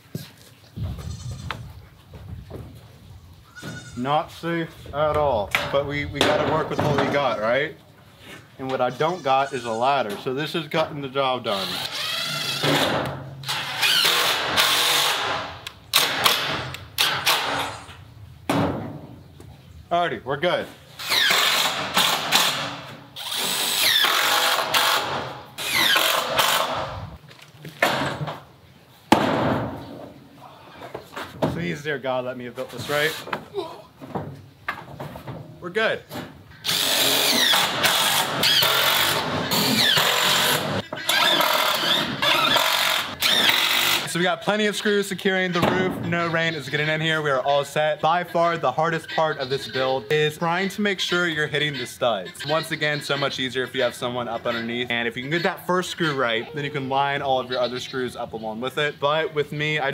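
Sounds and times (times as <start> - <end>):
cordless drill driving screws: 11.6 - 12.8, 13.4 - 15.4, 21.0 - 22.6, 23.2 - 26.8, 36.6 - 44.1.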